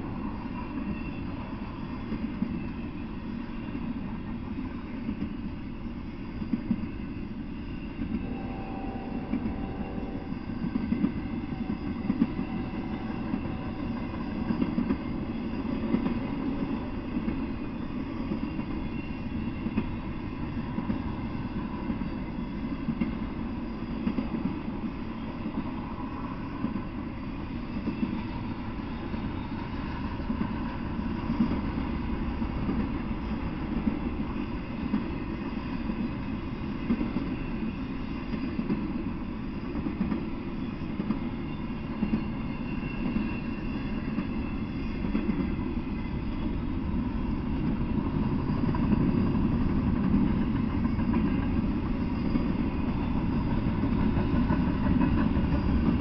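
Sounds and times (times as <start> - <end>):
freight train rumbling past: 0.0 - 56.0.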